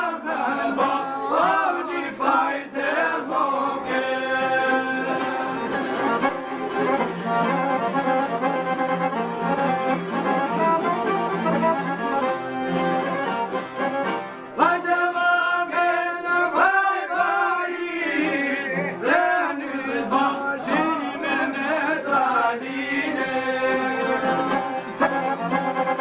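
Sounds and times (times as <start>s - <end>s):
men singing folk song: 0.0s - 6.4s, 14.6s - 25.1s
accordion: 0.0s - 26.0s
plucked lutes: 0.3s - 1.7s, 2.8s - 15.3s, 20.1s - 26.0s.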